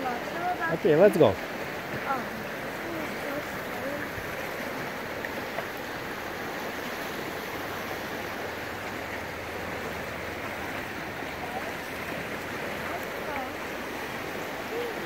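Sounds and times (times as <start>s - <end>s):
shallow river rushing over riffles: 0.0s - 15.0s.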